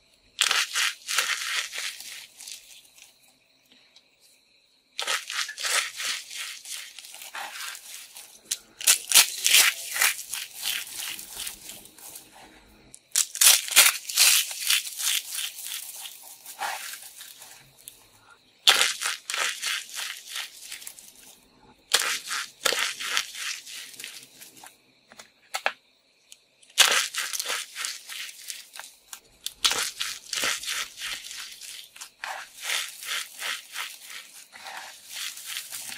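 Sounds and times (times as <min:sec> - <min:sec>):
soap pieces crunching: 0:00.4 - 0:02.8, 0:05.0 - 0:12.3, 0:13.1 - 0:18.0, 0:18.7 - 0:21.0, 0:21.9 - 0:24.6, 0:26.8 - 0:28.8, 0:29.4 - 0:35.9.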